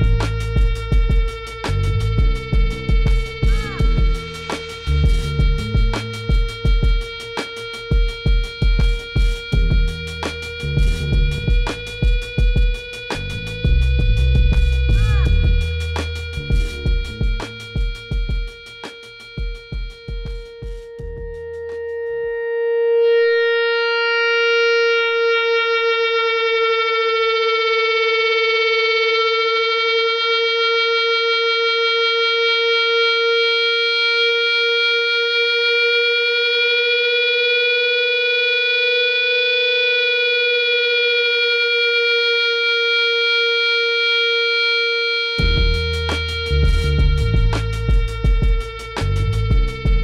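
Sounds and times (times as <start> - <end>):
sustained electric guitar note: 0.0 - 8.9, 9.5 - 18.6
detuned note with beating warble: 0.0 - 26.9, 44.0 - 50.0.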